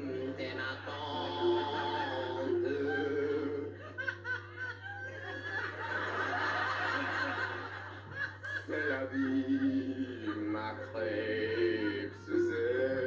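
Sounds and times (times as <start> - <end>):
man singing comically: 0.0 - 3.8, 8.6 - 13.0
audience laughing: 0.0 - 13.0
low mains hum: 0.0 - 13.0.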